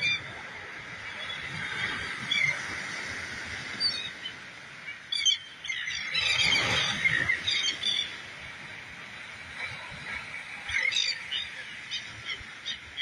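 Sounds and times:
small waves breaking on sand: 0.0 - 13.0
seabirds calling: 3.6 - 8.6, 9.6 - 13.0.

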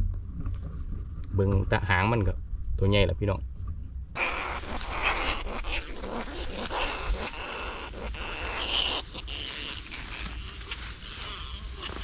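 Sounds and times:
dry grass rustling: 4.2 - 12.0
rat squealing: 4.2 - 12.0.

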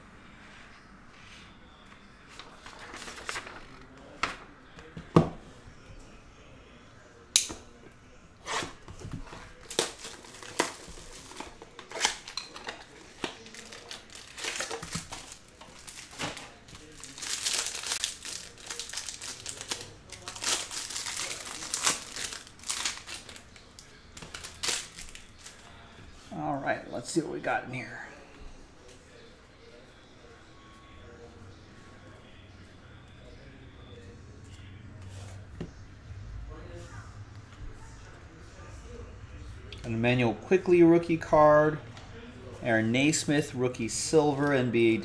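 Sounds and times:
plastic wrapping crinkling: 2.4 - 3.8, 9.5 - 25.7.

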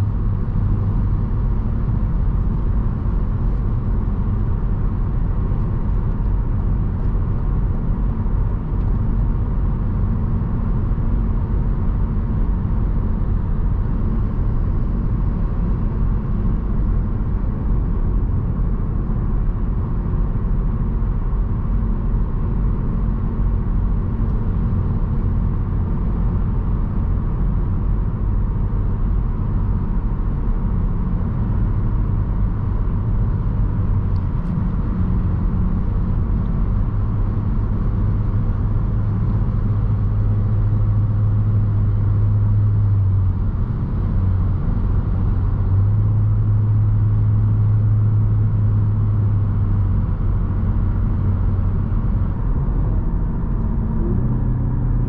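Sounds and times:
car engine droning: 0.0 - 55.0.

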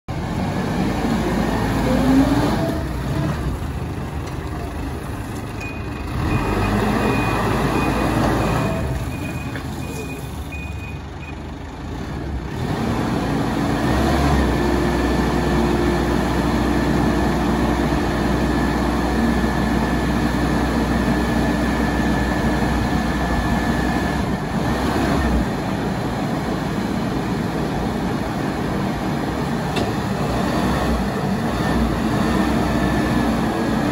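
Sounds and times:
diesel engine running: 0.1 - 33.9
faint intermittent beeping: 5.5 - 11.5.

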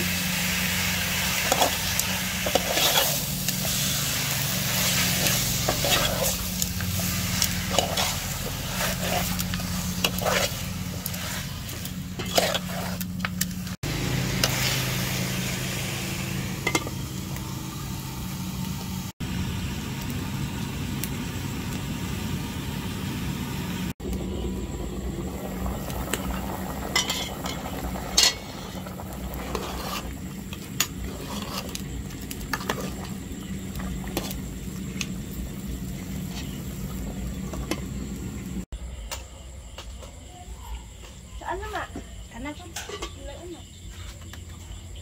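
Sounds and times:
steady low hum: 0.0 - 38.7
meat sizzling in a pot: 0.0 - 39.1
metal utensil scraping a pot: 1.3 - 4.1, 4.7 - 13.4, 16.6 - 17.0, 27.0 - 31.9
lid and utensils clinking on pot: 16.6 - 17.0, 27.0 - 28.6, 42.7 - 43.2.

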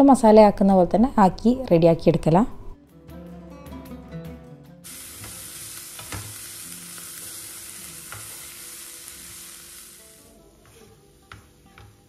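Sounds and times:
onions sizzling in frying pan: 4.8 - 12.0.

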